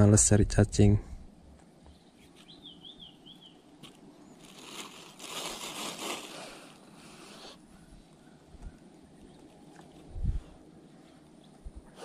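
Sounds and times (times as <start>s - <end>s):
plastic bag crinkling: 3.8s - 6.8s.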